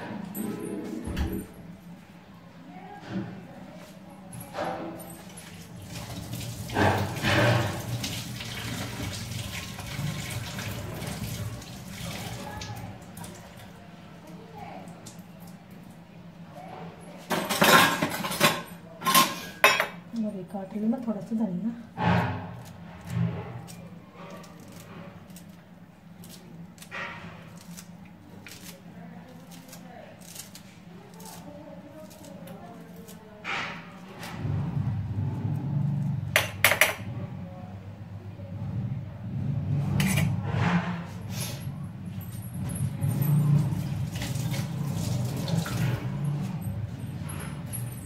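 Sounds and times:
tap water running into sink: 0:05.5 - 0:13.7, 0:43.7 - 0:46.2.

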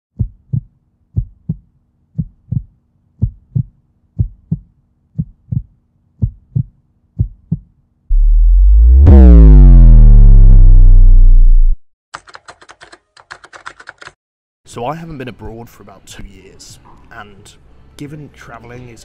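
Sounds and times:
heartbeat thumps: 0:00.2 - 0:11.6
low synthesizer tone: 0:08.1 - 0:11.9.

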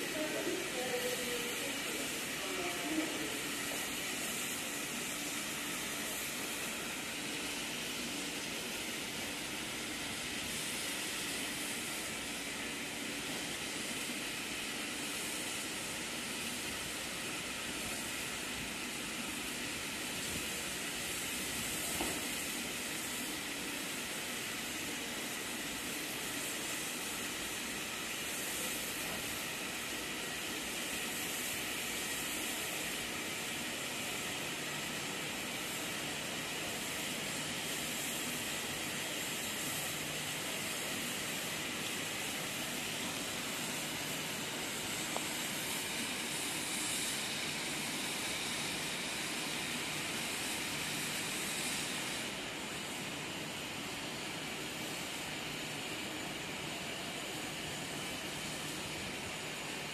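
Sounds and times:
steam hissing: 0:00.0 - 0:59.9.

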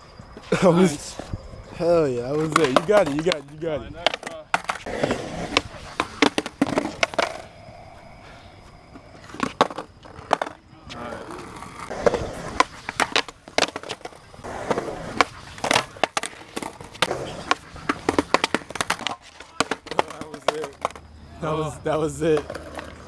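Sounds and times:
skateboard wheels rolling: 0:00.0 - 0:23.0
skateboard trucks grinding: 0:02.1 - 0:23.0
skateboard clacks: 0:02.4 - 0:07.5, 0:09.2 - 0:21.1, 0:22.3 - 0:23.0.

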